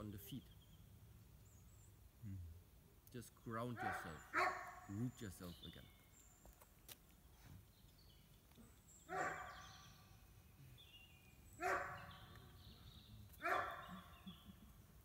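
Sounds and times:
dog barking: 3.8 - 4.9, 9.1 - 9.7, 11.6 - 12.3, 13.4 - 14.1.

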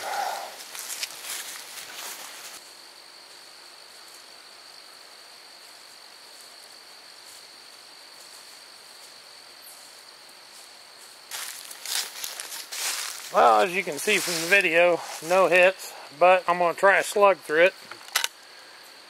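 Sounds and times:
insects singing: 0.0 - 19.0
rustling: 0.6 - 2.7, 5.6 - 15.5.

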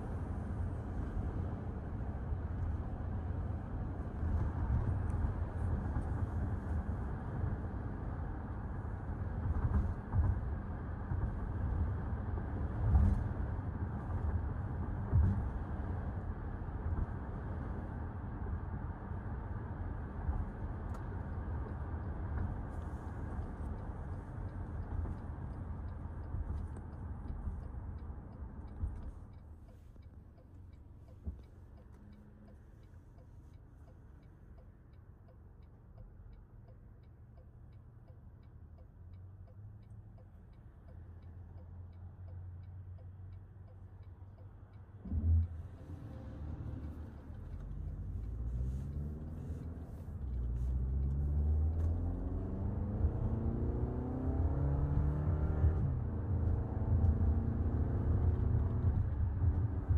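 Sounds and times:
turn signal ticking: 20.0 - 55.0
tyre and road noise: 43.0 - 59.9
car engine accelerating: 45.0 - 59.9.

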